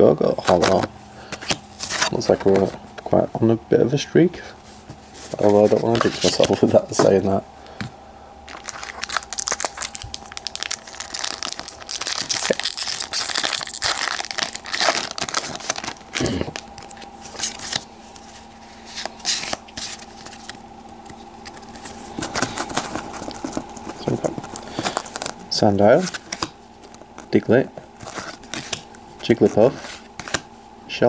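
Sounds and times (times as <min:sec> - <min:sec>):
cards sliding against each other: 0:00.5 - 0:02.7, 0:17.2 - 0:25.3, 0:28.0 - 0:28.9, 0:29.7 - 0:30.5
foil wrapper crinkling and tearing: 0:08.5 - 0:17.9, 0:21.4 - 0:25.4.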